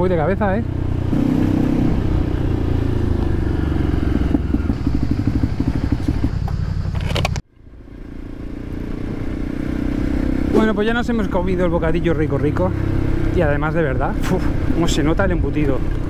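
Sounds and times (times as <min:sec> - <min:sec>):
motorcycle engine running: 0:00.0 - 0:16.0
sharp clicks: 0:06.1 - 0:07.4.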